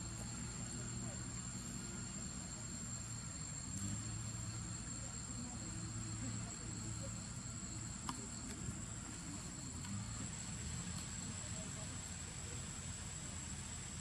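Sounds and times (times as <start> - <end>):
insects droning: 0.0 - 14.0
faint clicks: 8.0 - 8.6.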